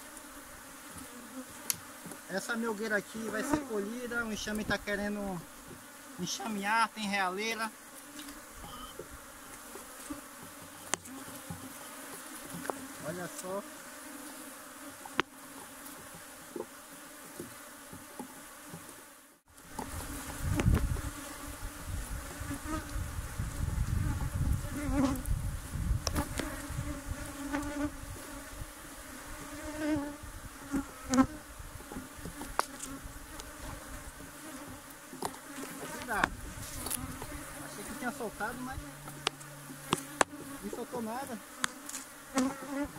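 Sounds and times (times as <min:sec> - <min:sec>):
honeybees buzzing: 0:00.0 - 0:42.9
low rumble from hive: 0:19.8 - 0:34.7, 0:35.8 - 0:40.7.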